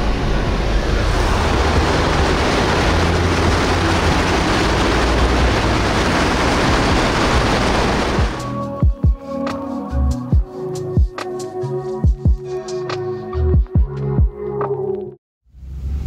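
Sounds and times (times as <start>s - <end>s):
water spraying from tyres: 0.0s - 8.4s
engine and road rumble: 0.0s - 8.7s, 13.4s - 16.0s.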